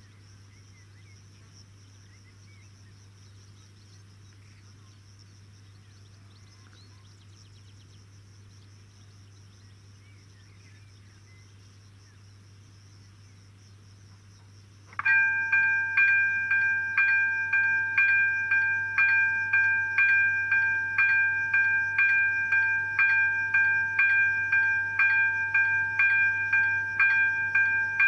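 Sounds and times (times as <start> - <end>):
faint chirps: 0.0 - 12.2
insects chirring: 0.0 - 28.0
low hum: 14.9 - 28.0.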